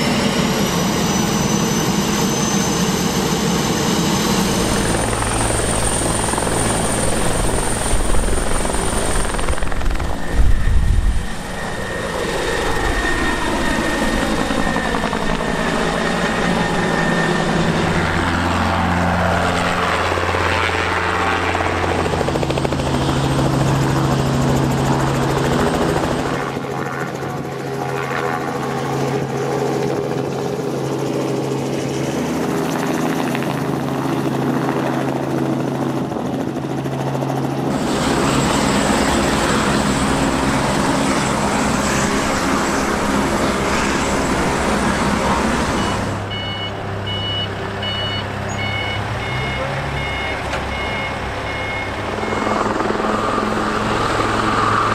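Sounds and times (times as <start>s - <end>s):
helicopter rotor and engine: 0.0s - 54.9s.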